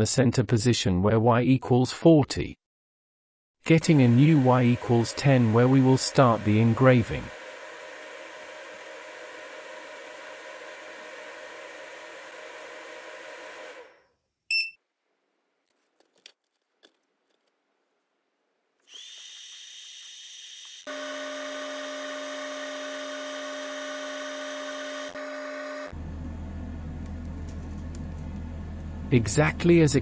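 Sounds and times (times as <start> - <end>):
fan hiss: 3.7 - 13.9
machine fan whine and hum: 3.7 - 14.0, 20.9 - 30.0
short electronic beep: 14.5 - 14.8.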